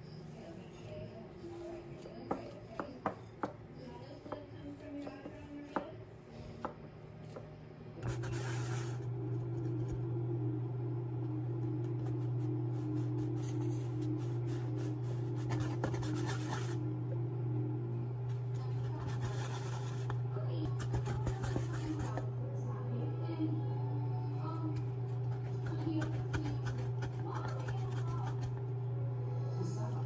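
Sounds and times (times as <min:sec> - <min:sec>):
hands working dough: 0:00.0 - 0:10.2, 0:11.5 - 0:17.0, 0:18.2 - 0:22.6, 0:24.4 - 0:28.9
steady low hum: 0:00.0 - 0:30.0
glass scratching and knocking on dough: 0:14.8 - 0:16.8, 0:18.8 - 0:22.3, 0:25.2 - 0:28.6.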